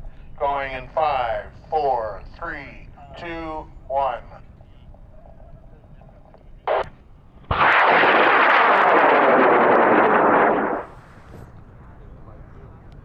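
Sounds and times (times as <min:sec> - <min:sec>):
rocket motor roaring: 0:07.5 - 0:11.4.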